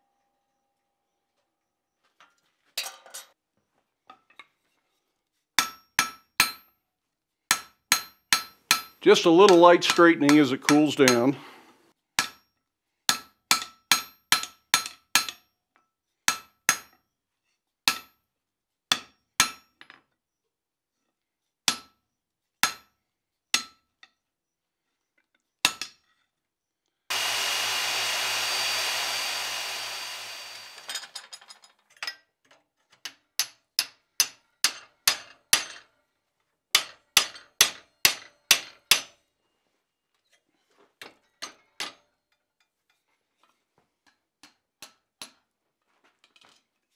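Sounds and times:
hammer striking steel on anvil: 5.6s - 6.6s, 7.5s - 11.3s, 12.2s - 12.4s.

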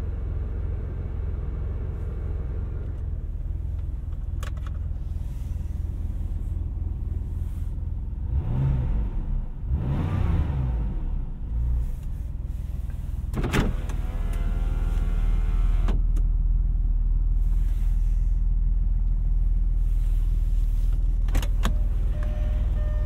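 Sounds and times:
car engine drone: 0.0s - 23.0s.

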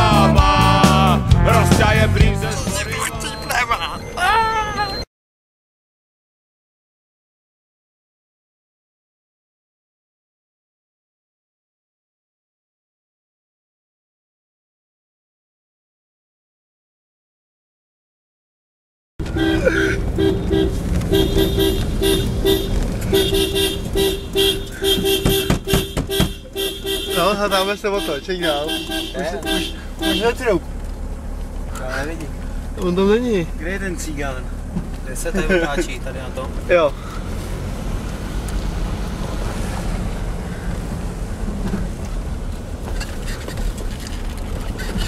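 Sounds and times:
car horn blasts: 0.0s - 3.5s, 19.2s - 30.6s
car driving rumble: 0.0s - 5.1s, 19.2s - 45.0s.

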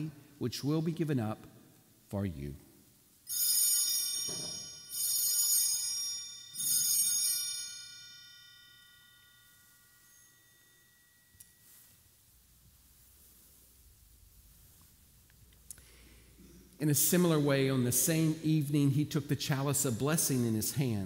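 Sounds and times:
altar bell ringing: 3.2s - 12.5s.

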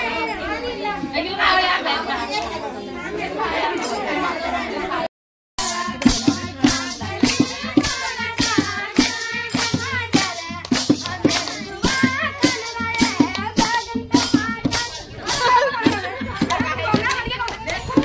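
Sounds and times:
group singing: 3.0s - 18.0s
rhythmic clapping: 5.6s - 18.0s.

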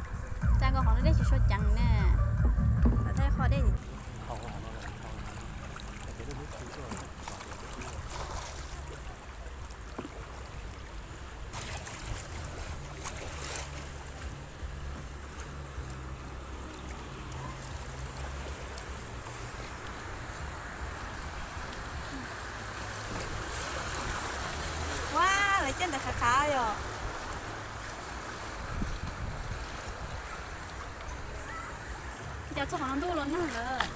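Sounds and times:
choppy river water rushing: 0.0s - 33.9s
wind rumble on microphone: 28.5s - 30.3s.

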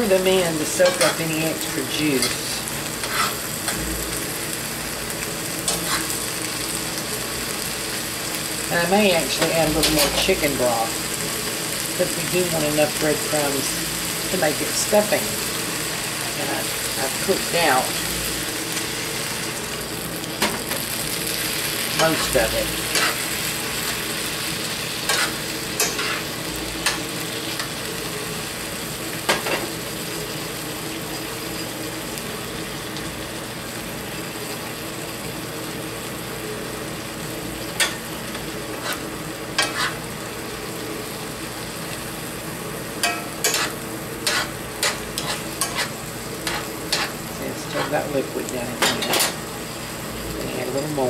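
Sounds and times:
stuffing sizzling in a skillet: 0.0s - 51.0s
utensil scraping a pan: 2.2s - 3.4s, 5.7s - 6.2s, 22.0s - 23.3s, 25.0s - 26.3s, 38.7s - 40.0s, 43.4s - 48.1s.

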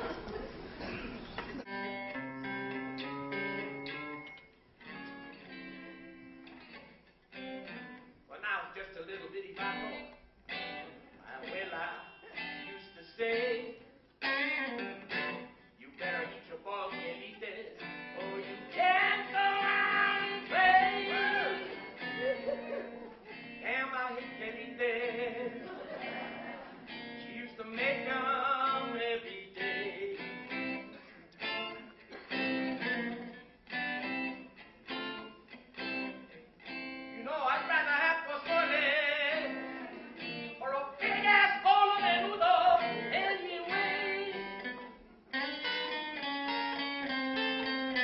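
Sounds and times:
acoustic guitar strumming: 1.6s - 8.4s, 9.2s - 48.0s
person singing: 11.4s - 33.0s, 37.2s - 44.9s.

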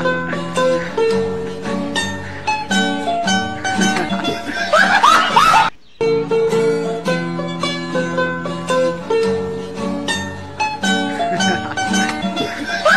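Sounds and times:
plucked string instrument tune: 0.0s - 12.9s.

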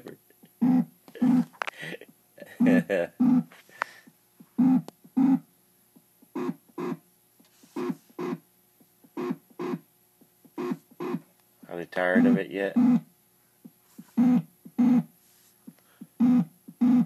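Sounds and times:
short radio pulses: 10.5s - 11.2s, 12.0s - 13.1s
faint radio hum: 11.6s - 13.0s.

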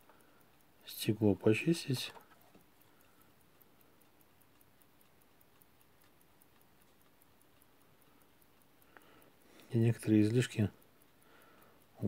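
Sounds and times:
mechanical watch ticking: 0.0s - 12.0s.

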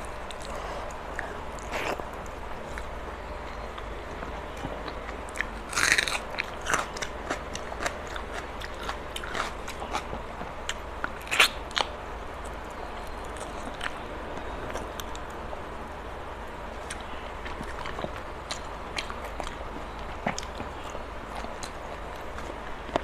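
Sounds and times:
steady low hum: 0.0s - 23.0s
wet chewing and biting: 3.7s - 14.0s.

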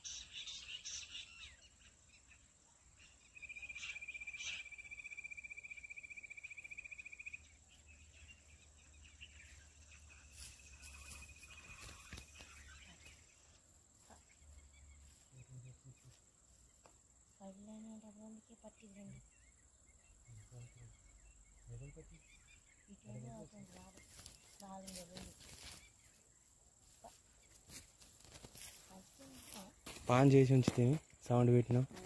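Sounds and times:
high insect whine: 3.0s - 13.6s
insect trilling: 9.1s - 13.6s.

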